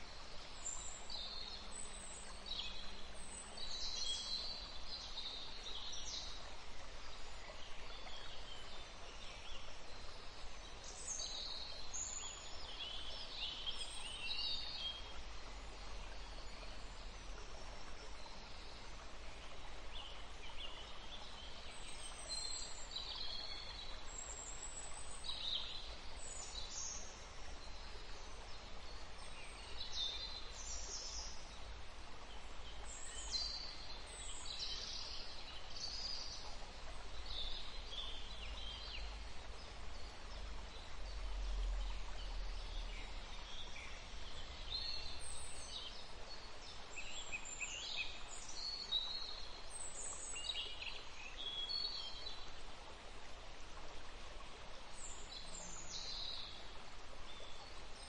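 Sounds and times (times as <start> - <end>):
distant flowing water hiss: 0.0 - 58.0.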